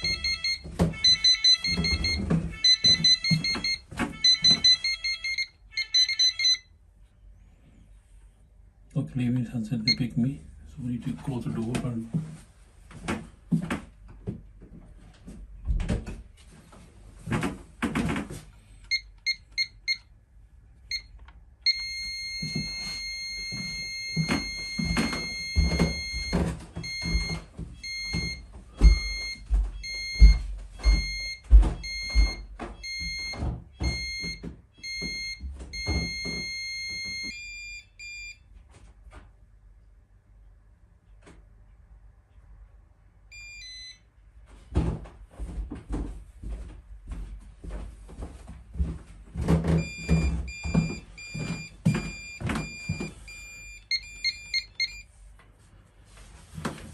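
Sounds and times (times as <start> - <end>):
door thumps and knocks: 0.0 - 4.9, 15.6 - 16.3, 24.1 - 37.2
alarm keypad beeping: 0.0 - 6.7, 9.8 - 10.1, 18.9 - 20.1, 20.9 - 38.4, 43.3 - 44.0, 49.8 - 55.1.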